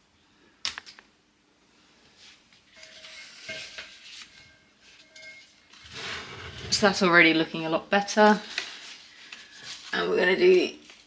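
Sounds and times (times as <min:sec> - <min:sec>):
glass vase clinking: 0:02.8 - 0:06.0
faint rustling of stems: 0:08.2 - 0:11.0.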